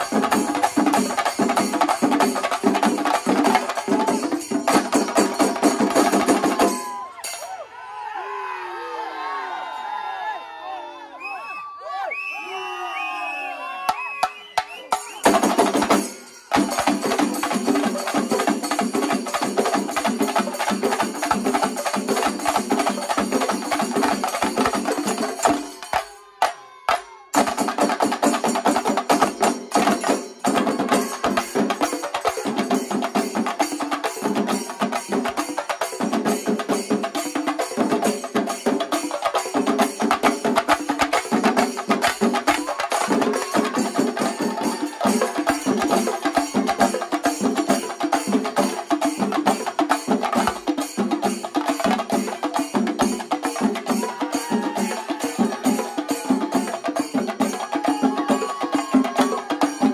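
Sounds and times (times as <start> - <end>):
rapid drumming: 0.0 - 7.4, 13.9 - 59.9
cymbals: 14.1 - 26.2.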